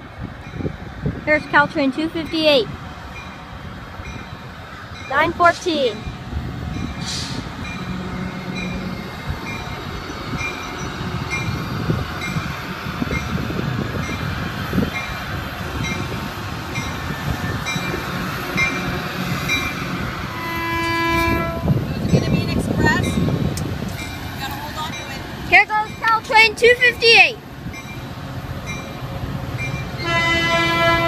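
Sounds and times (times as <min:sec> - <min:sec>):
train rumbling: 0:00.0 - 0:31.0
train bell ringing: 0:00.4 - 0:14.3, 0:15.8 - 0:19.8, 0:20.9 - 0:30.4
train horn blast: 0:07.0 - 0:09.2, 0:17.9 - 0:22.5, 0:30.0 - 0:31.0.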